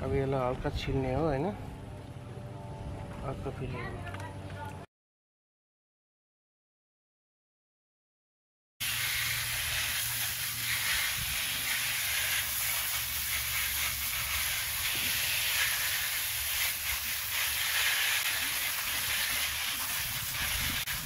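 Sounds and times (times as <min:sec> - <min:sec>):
hose nozzle spraying water: 0:08.8 - 0:21.0.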